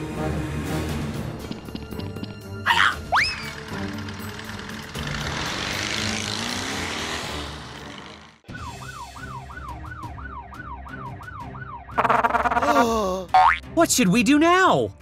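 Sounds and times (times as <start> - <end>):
background music: 0.0 - 15.0
siren wailing: 8.5 - 12.8.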